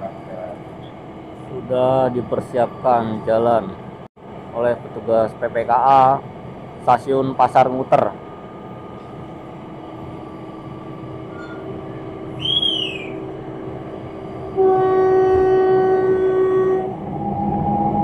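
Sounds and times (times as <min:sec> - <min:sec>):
railbus engine humming: 0:00.0 - 0:18.0
high whistle: 0:12.4 - 0:13.2
railbus horn blast: 0:14.4 - 0:17.0.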